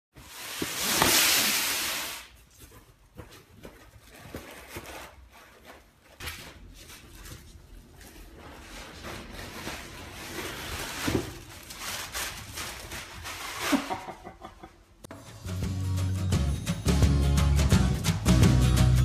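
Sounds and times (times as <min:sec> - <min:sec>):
dogs rustling paper in a box: 0:03.1 - 0:14.1.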